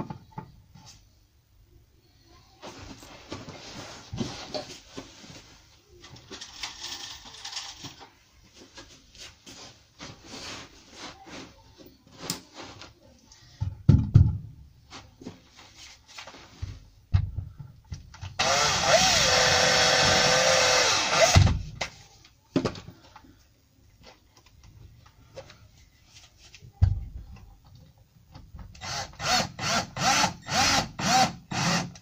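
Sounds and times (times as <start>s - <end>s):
rustling and handling noises: 2.2s - 13.8s, 14.8s - 18.2s, 21.8s - 28.3s.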